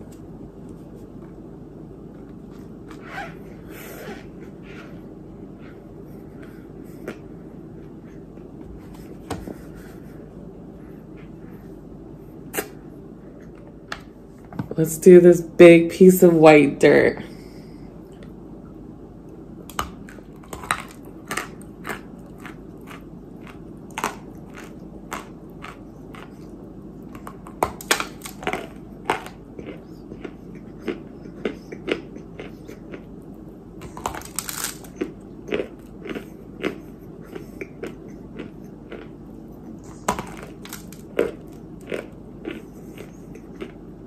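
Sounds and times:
chewing crunchy clay: 19.6 - 44.0.

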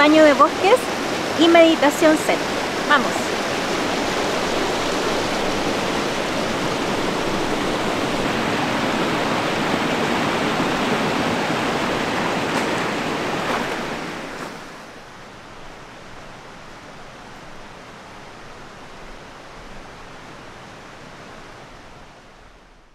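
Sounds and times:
rushing creek water: 0.0 - 22.7.

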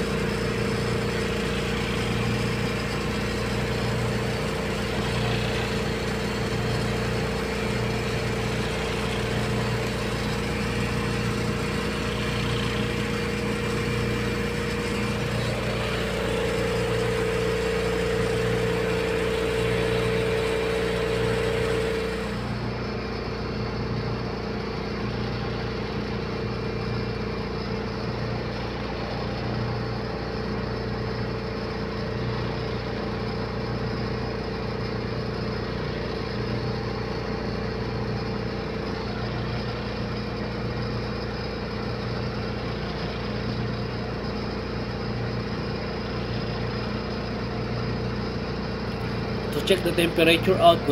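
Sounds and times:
engine-room machinery drone: 0.0 - 50.9
high machinery whine: 0.0 - 50.9.

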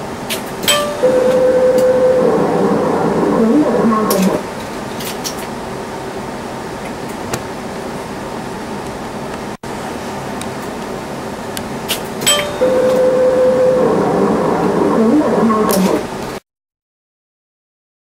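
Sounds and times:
motor hum: 1.0 - 4.5, 12.5 - 16.1
motor whine wavering: 1.0 - 4.5, 12.6 - 16.1.

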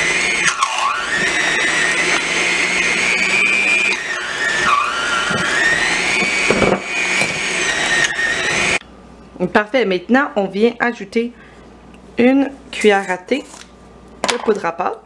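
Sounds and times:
electric hand mixer running: 0.0 - 8.8.

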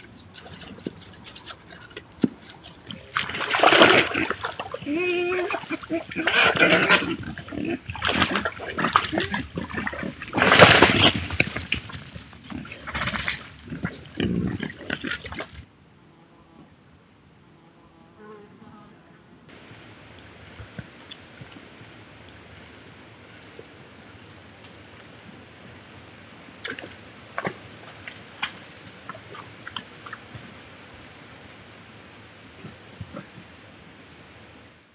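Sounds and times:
hooves snapping twigs: 0.0 - 4.9, 7.9 - 15.6
wild boar grunting: 0.0 - 11.5, 12.4 - 15.6
splashing in mud: 0.0 - 15.6, 26.6 - 30.5
microphone hiss: 2.9 - 34.9.

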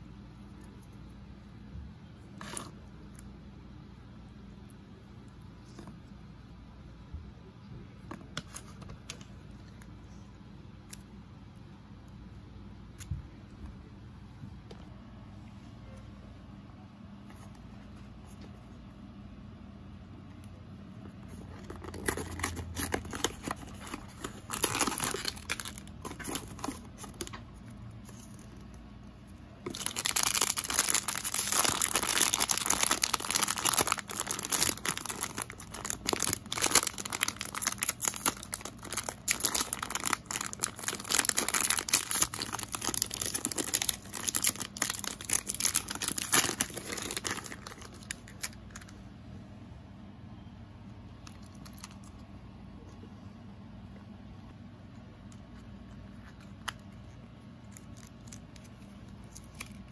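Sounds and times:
plastic bag crinkling: 21.3 - 28.7, 29.6 - 48.9
cardboard box rustling: 21.4 - 27.3.

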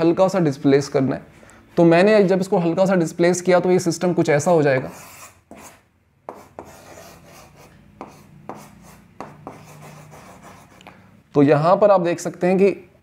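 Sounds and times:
chalk scraping on chalkboard: 4.8 - 10.8.

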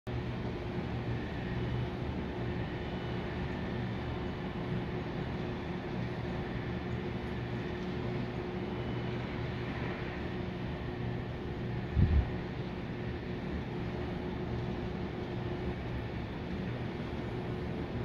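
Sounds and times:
faint constant tone: 0.1 - 18.0
low city hum: 0.1 - 18.0.

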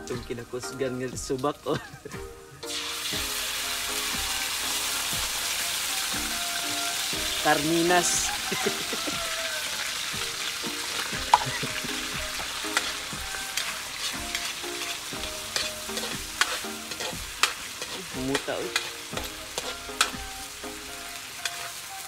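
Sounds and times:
food sizzling in hot oil: 0.0 - 22.0
ladle scraping a wok: 12.5 - 20.2
ladle clicking against pan: 15.5 - 20.2.

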